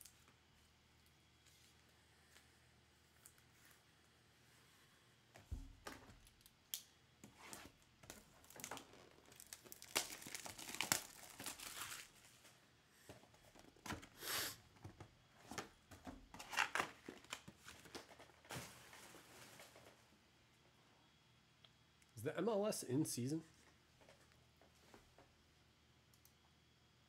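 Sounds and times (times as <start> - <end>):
plastic wrap crinkling and tearing: 6.2 - 12.5, 16.4 - 19.9.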